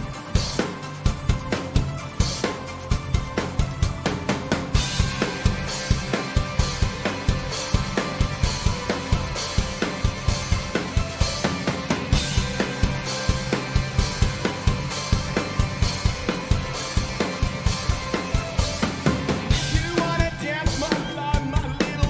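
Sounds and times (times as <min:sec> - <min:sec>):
rock band playing: 0:00.0 - 0:22.0
person singing: 0:19.5 - 0:22.0.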